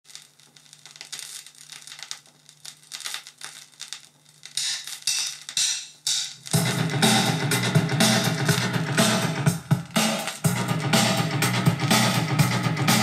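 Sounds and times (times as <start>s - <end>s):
vinyl crackle and pops: 0.0s - 6.6s, 8.2s - 10.6s.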